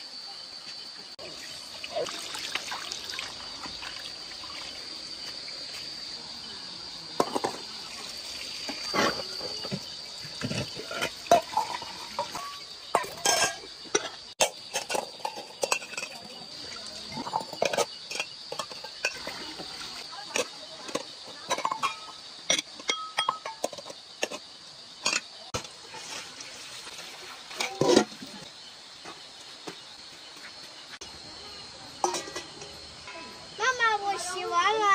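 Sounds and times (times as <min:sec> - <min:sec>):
night insects droning: 0:00.0 - 0:34.9
running water splashing: 0:01.2 - 0:06.3, 0:07.1 - 0:14.0, 0:15.6 - 0:21.7, 0:25.0 - 0:31.0
metal bowls clinking: 0:08.6 - 0:19.7, 0:20.3 - 0:24.4, 0:25.0 - 0:25.7, 0:27.5 - 0:28.4, 0:32.0 - 0:33.2.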